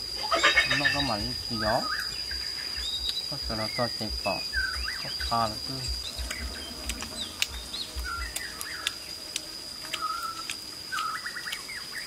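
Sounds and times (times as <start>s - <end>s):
high-pitched insect drone: 0.0s - 12.0s
birds chirping: 0.2s - 12.0s.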